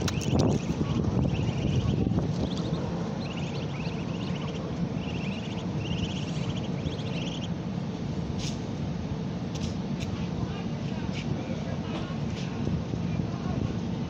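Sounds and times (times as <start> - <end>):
ducklings peeping: 0.0 - 7.7
low rumble: 0.0 - 9.3.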